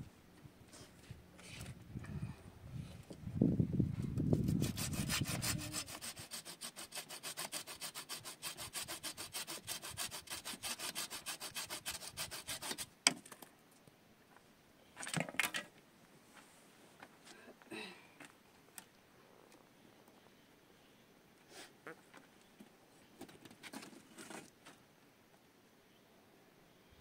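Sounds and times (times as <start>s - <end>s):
hand saw sawing wood: 4.4s - 12.9s.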